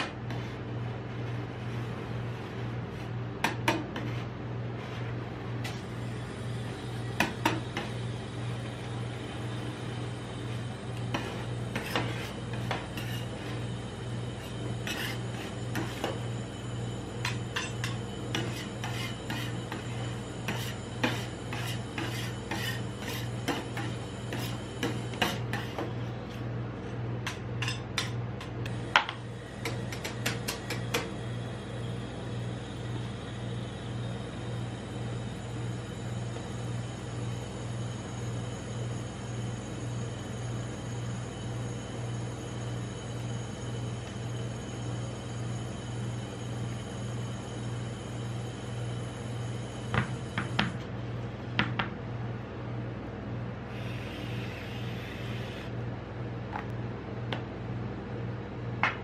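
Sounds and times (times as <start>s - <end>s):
steady low hum: 0.0s - 59.0s
metal spatulas scraping steel plate: 11.2s - 13.6s, 14.4s - 16.2s, 17.2s - 25.9s.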